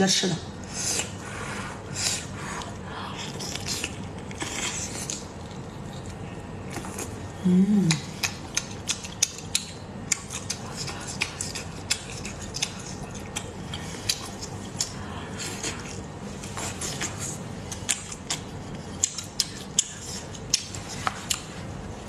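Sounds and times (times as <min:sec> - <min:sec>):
low steady hum: 0:00.0 - 0:22.0
chewing and biting squid: 0:08.0 - 0:21.5.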